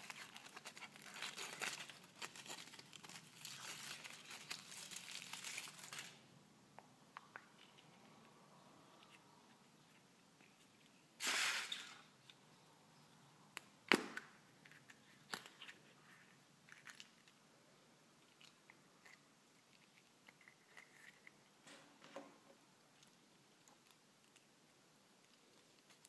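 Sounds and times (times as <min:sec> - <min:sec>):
wrapper crunching rustle: 0:00.0 - 0:06.2.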